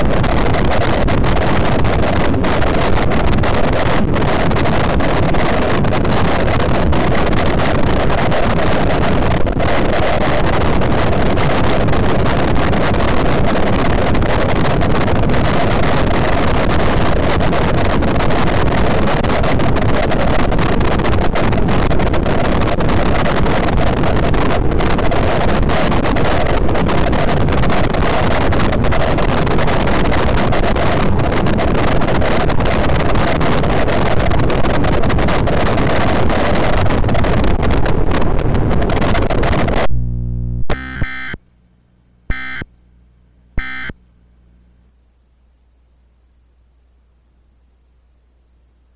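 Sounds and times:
loud rushing static: 0:00.0 - 0:44.7
data-burst squawks: 0:40.7 - 0:41.4, 0:42.3 - 0:42.7, 0:43.6 - 0:44.0.

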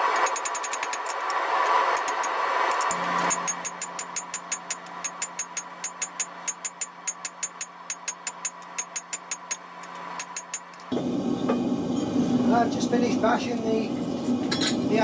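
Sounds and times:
hammer striking steel on anvil: 0:02.0 - 0:11.7.

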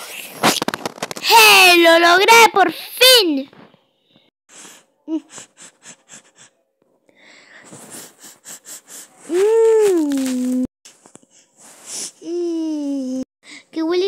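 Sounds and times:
breathy puffs: 0:04.5 - 0:13.7.

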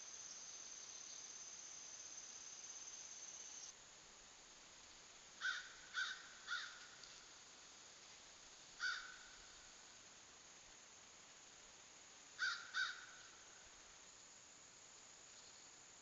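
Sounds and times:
insect trilling: 0:05.4 - 0:06.9
crow cawing: 0:05.4 - 0:07.0, 0:08.8 - 0:09.4, 0:12.4 - 0:13.3.

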